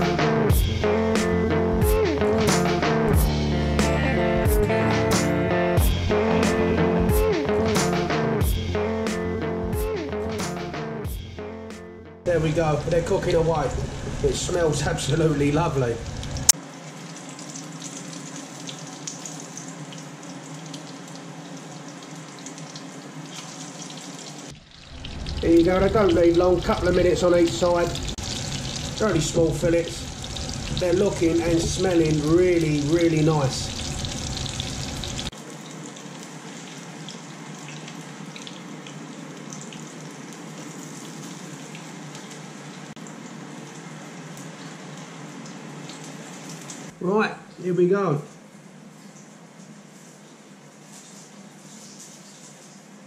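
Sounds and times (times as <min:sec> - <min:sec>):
fish frying in oil: 0:15.8 - 0:47.0, 0:48.8 - 0:53.0.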